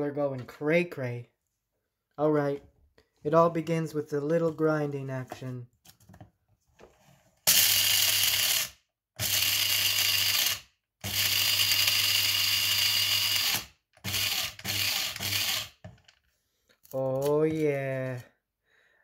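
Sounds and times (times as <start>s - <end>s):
electric coffee grinder motor: 7.5s - 15.8s.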